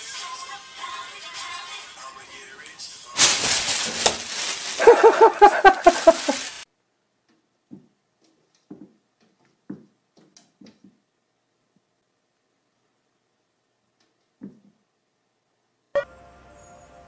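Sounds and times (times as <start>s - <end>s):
plastic bag crinkling: 3.2s - 6.6s.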